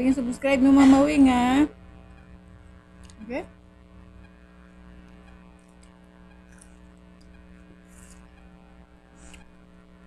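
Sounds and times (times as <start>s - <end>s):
electrical hum: 0.0s - 10.0s
chewing and slurping: 5.6s - 8.4s.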